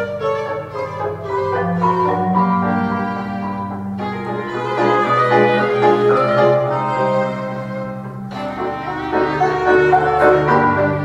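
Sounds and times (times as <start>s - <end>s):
clarinet: 0.0s - 11.0s
upright piano: 0.0s - 11.0s
violin melody: 0.0s - 11.0s
sustained low notes: 0.7s - 11.0s.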